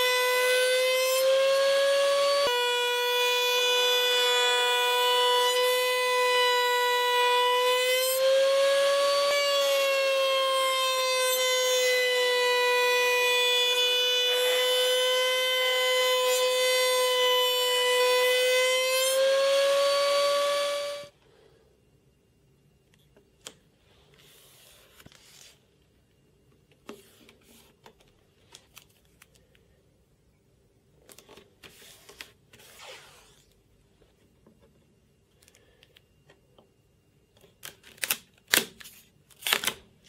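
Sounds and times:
router high-pitched whine: 0.0 - 21.2.

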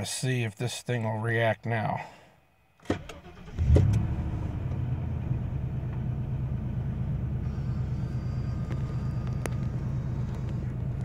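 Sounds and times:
engine idling from inside cab: 3.0 - 11.0.

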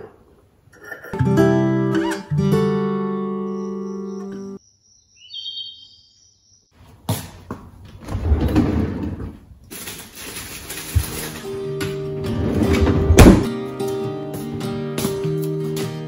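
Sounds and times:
freezer drawer sliding open: 8.0 - 13.5
knocks and rattling in drawer: 12.4 - 13.5.

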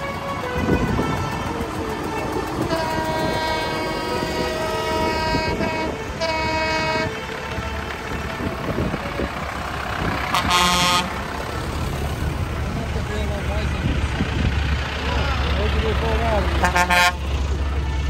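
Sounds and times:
air horn blasts: 0.0 - 1.7, 2.6 - 7.7, 10.3 - 11.2, 16.6 - 18.0
tractor engines rumbling: 0.0 - 18.0.

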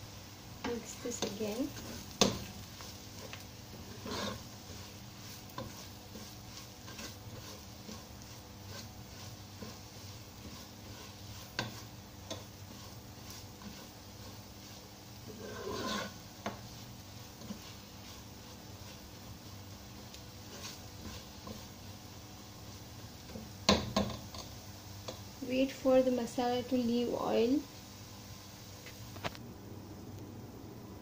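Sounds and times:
spatula scraping a pot: 0.6 - 24.5.

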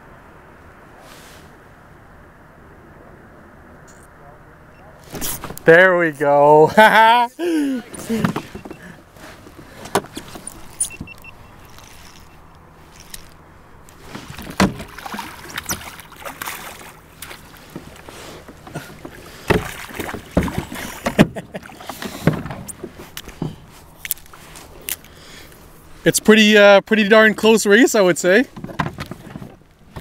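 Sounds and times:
knocks and clunks on a kayak: 7.8 - 11.9, 13.9 - 23.8, 28.4 - 30.0.

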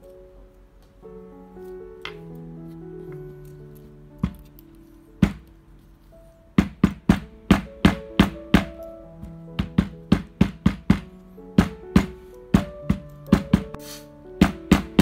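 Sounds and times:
background music: 0.0 - 15.0
rubber mallet knocking on table: 9.6 - 13.8, 14.4 - 15.0.

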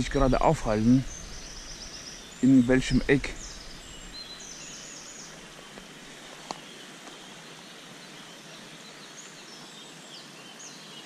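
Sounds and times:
steady background hiss: 0.0 - 11.0
faint high bird chirps: 0.2 - 5.7.

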